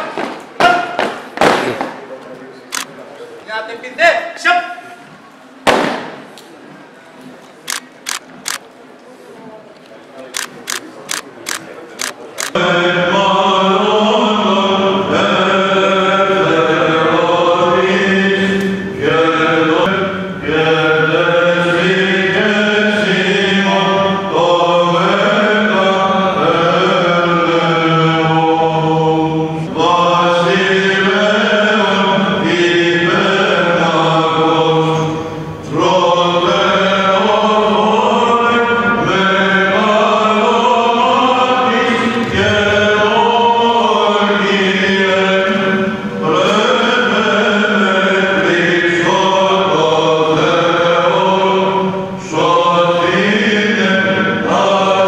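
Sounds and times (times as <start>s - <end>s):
camera shutter clicks: 2.7s - 2.9s, 7.7s - 8.7s, 10.4s - 12.6s
voices chanting over drone: 12.4s - 55.0s.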